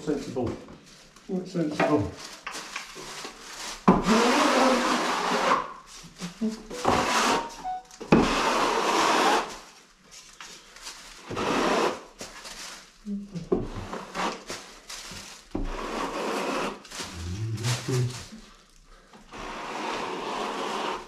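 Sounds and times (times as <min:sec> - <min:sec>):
skim blade scraping plaster: 0:19.3 - 0:21.0.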